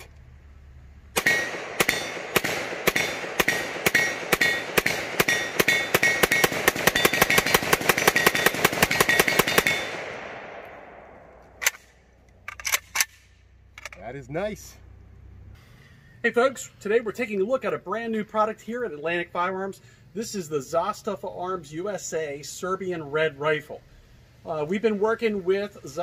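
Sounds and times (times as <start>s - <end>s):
rapid rifle shots: 1.2s - 10.6s.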